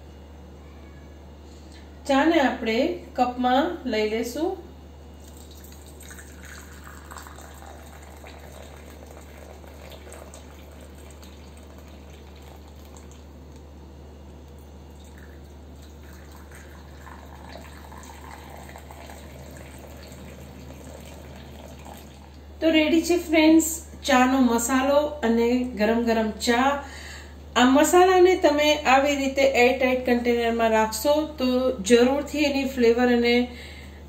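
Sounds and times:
steady low hum: 0.0s - 34.0s
liquid trickling into cups: 5.2s - 13.7s, 14.4s - 22.5s.

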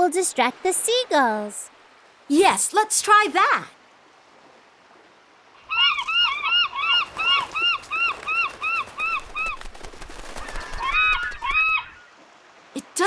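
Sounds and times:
seagulls squawking: 5.7s - 9.7s, 10.3s - 12.1s.

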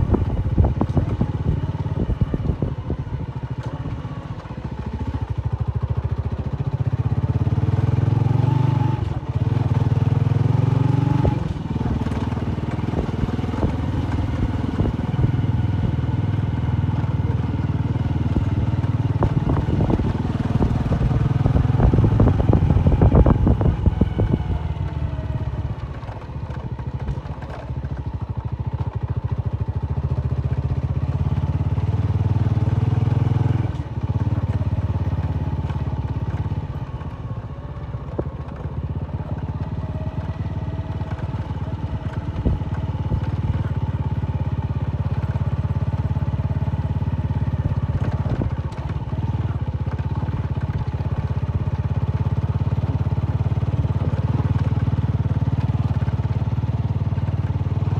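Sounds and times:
motorcycle engine revving: 0.0s - 57.9s.

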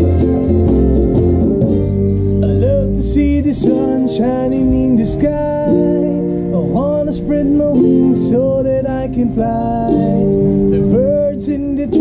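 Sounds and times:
bass guitar: 0.0s - 12.0s
electric guitars: 0.0s - 12.0s
strummed acoustic guitar: 0.0s - 12.0s.

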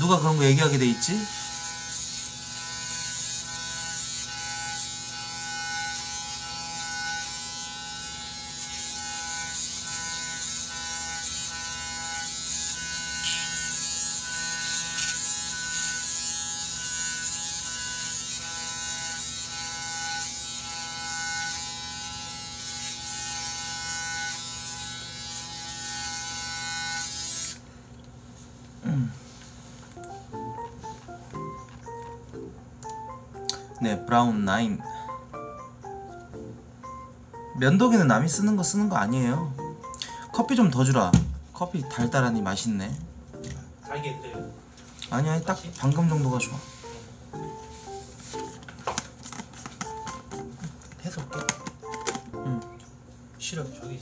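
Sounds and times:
electric shaver buzzing: 0.0s - 27.7s.

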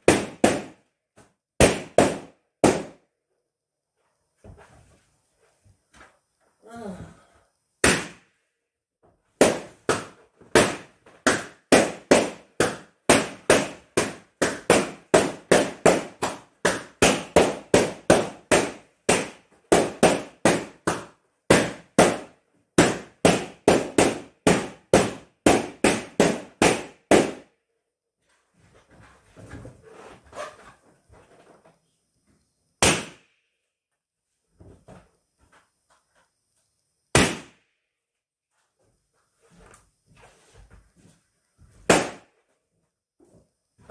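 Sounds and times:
balloons popping: 0.0s - 0.9s, 1.6s - 3.0s, 7.8s - 8.2s, 9.4s - 27.5s, 32.8s - 33.3s, 37.1s - 37.6s, 41.8s - 42.3s.

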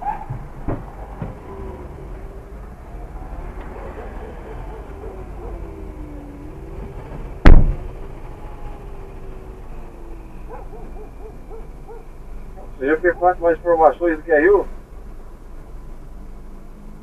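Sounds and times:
motorcycle engine rumbling: 0.0s - 17.0s
loud sharp thump: 7.4s - 8.0s.

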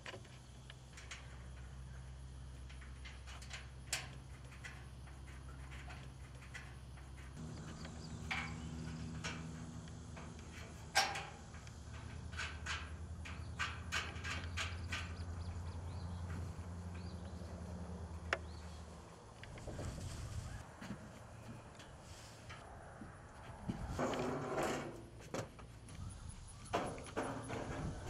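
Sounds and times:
steady low hum: 0.1s - 28.0s
metal bolts clicking: 2.6s - 15.4s.

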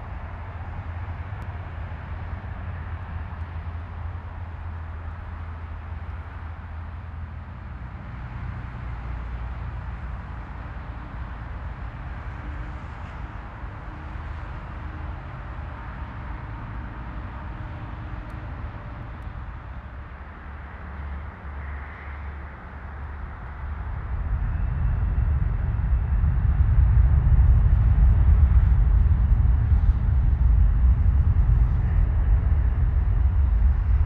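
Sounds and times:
airliner engines rumbling: 0.0s - 34.0s.

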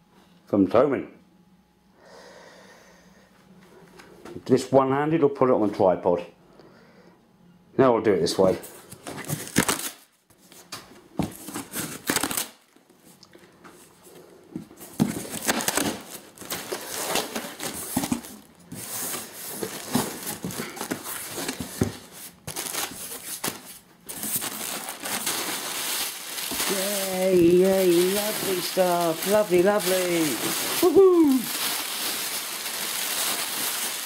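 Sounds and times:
bubble wrap rustling: 8.8s - 13.2s, 14.6s - 34.0s
cardboard ripping: 9.1s - 10.0s, 11.3s - 12.6s, 15.0s - 34.0s.

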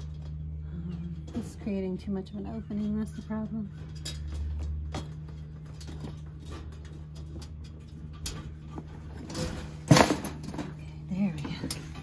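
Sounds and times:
steady low hum: 0.0s - 12.0s
wire cage trap rattling: 2.7s - 10.8s.

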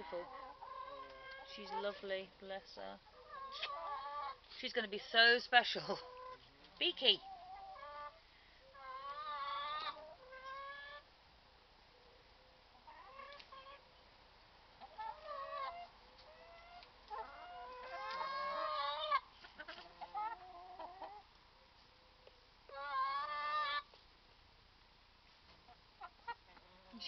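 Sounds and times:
hens clucking: 0.0s - 4.5s, 5.6s - 11.1s, 12.7s - 14.0s, 14.8s - 21.9s, 22.7s - 24.0s, 25.5s - 27.0s.

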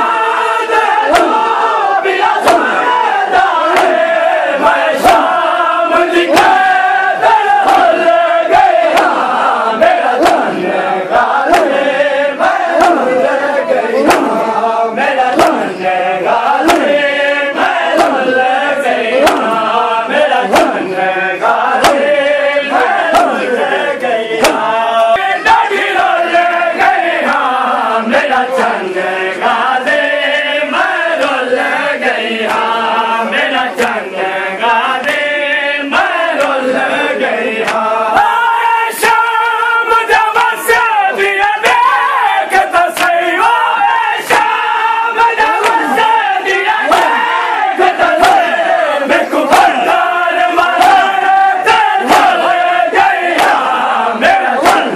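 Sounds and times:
men chanting in unison: 0.0s - 54.9s
hands slapping chests: 1.0s - 1.6s, 2.2s - 5.4s, 7.3s - 10.6s, 11.2s - 11.9s, 12.5s - 13.4s, 14.0s - 14.4s, 15.1s - 15.8s, 16.5s - 27.5s, 33.4s - 34.1s, 34.8s - 35.3s, 35.9s - 36.9s, 37.6s - 38.3s, 40.2s - 43.5s, 44.2s - 44.6s, 45.2s - 47.3s, 47.9s - 48.6s, 49.4s - 54.9s.

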